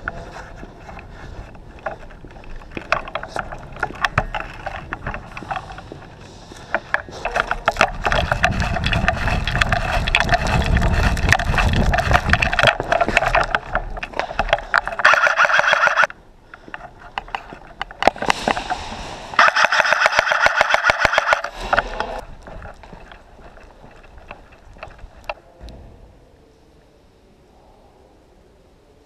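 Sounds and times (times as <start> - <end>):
clatter of movement and gear: 0.0 - 25.4
full-auto burst: 19.4 - 21.4
airsoft guns firing: 19.4 - 21.6.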